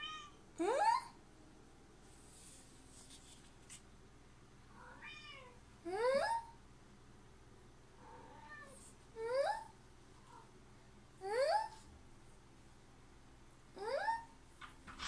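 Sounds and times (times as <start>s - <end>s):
cat meowing: 4.8s - 5.6s.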